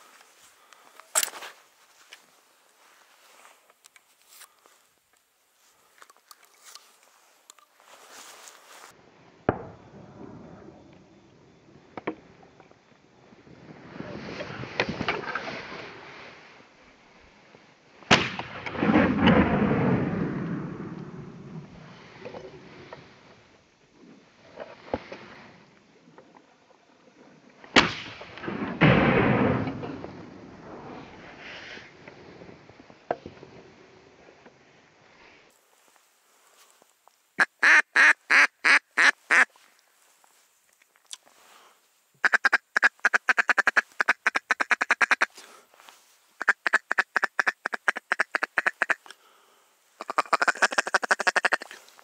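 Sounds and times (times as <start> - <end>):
footsteps crunching on stony ground: 0.0 - 4.9, 5.6 - 9.0
shotgun shots: 18.1 - 20.2, 27.8 - 30.1.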